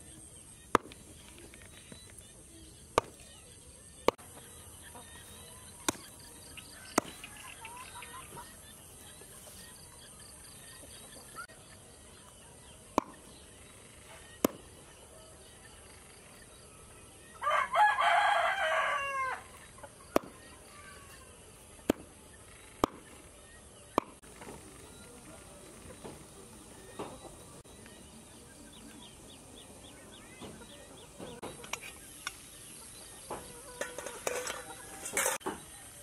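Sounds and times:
rooster crowing: 17.4s - 19.5s.

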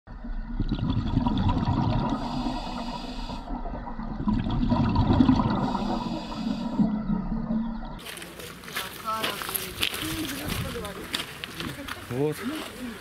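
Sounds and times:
rushing bubbling water: 0.1s - 8.0s.

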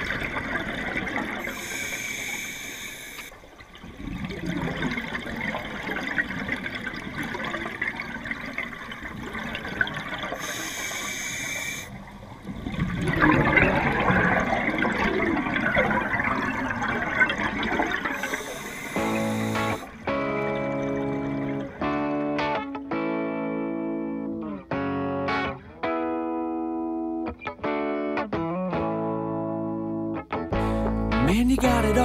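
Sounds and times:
underwater bubbling wash: 0.0s - 22.4s.

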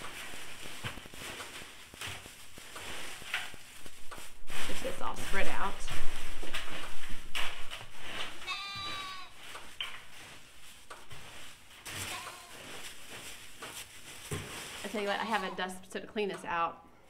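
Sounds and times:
wood shavings rustling and scraping: 0.0s - 15.6s
farm animal bleating: 8.4s - 9.4s, 12.0s - 12.6s.

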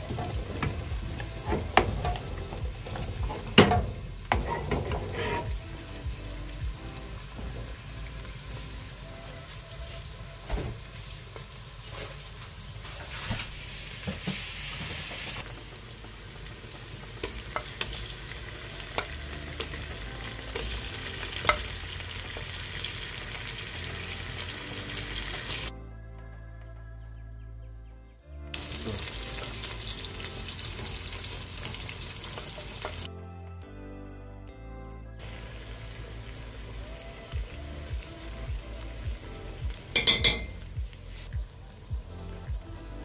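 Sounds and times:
stew sizzling: 0.0s - 25.7s, 28.6s - 33.1s, 35.2s - 43.0s
wooden spoon scraping pot: 4.3s - 5.6s
spoon knocking pot sides: 40.0s - 40.6s.

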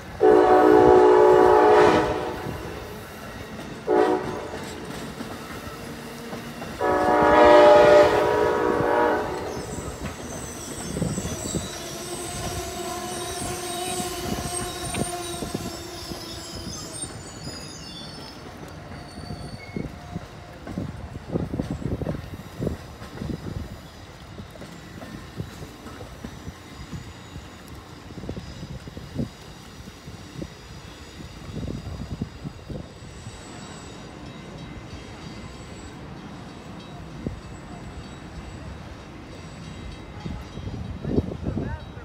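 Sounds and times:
train wheels clicking: 0.0s - 41.6s
train horn blasts: 0.2s - 2.9s, 3.8s - 4.9s, 6.8s - 9.8s
high wheel squeals: 9.2s - 20.6s.

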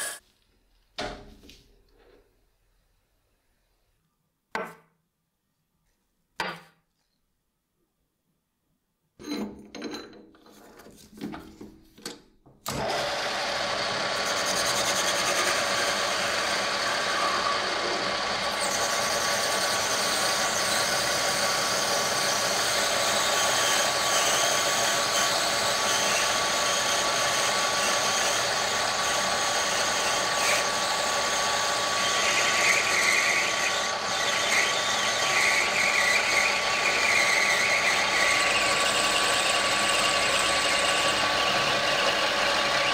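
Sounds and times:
cutting tool turning brass: 0.0s - 0.2s, 12.7s - 42.9s
metal lathe running with whine: 12.8s - 42.9s.

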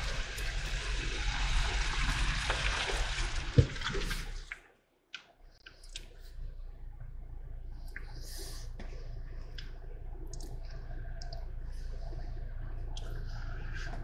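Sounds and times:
tyres splashing through mud: 0.0s - 4.5s
low engine rumble: 5.5s - 14.0s
faint clicks: 9.5s - 11.9s.

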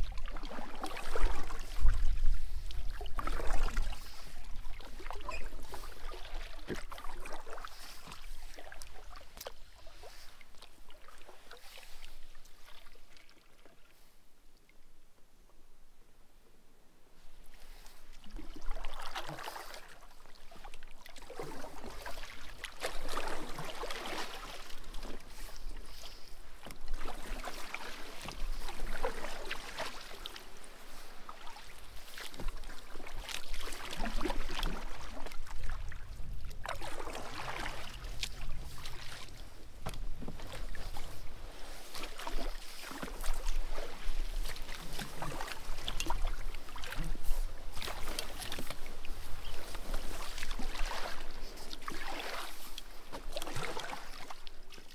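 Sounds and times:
kayak paddle strokes in water: 0.0s - 14.2s, 17.2s - 54.9s.

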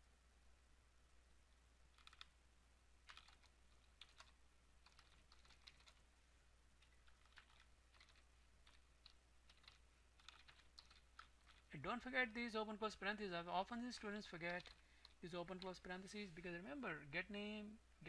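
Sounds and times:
keyboard typing: 1.9s - 2.4s, 3.0s - 6.0s, 6.8s - 12.2s, 13.6s - 16.4s.

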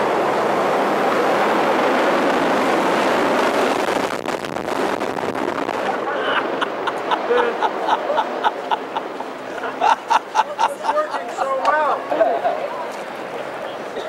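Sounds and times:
wind blowing across microphone: 0.0s - 10.4s
people chattering and laughing: 5.8s - 14.0s.

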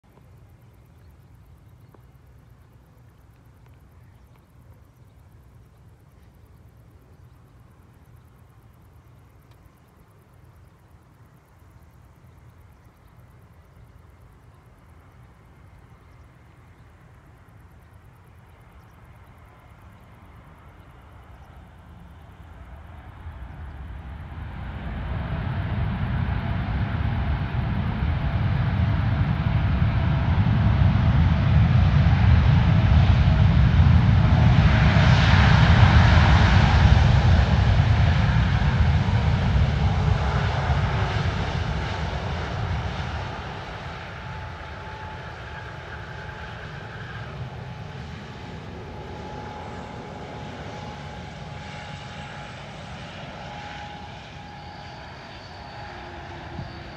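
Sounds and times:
steady engine whine: 0.0s - 56.9s
jet engines roaring: 18.4s - 56.9s
faint thin tone: 52.2s - 56.9s.

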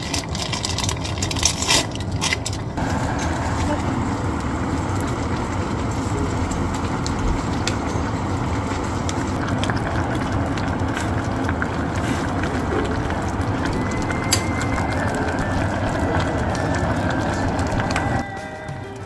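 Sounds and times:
stew boiling and bubbling: 0.0s - 19.0s.

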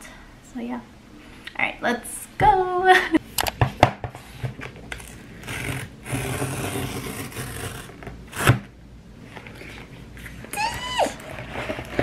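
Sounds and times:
cardboard mailer tearing: 5.4s - 8.7s.

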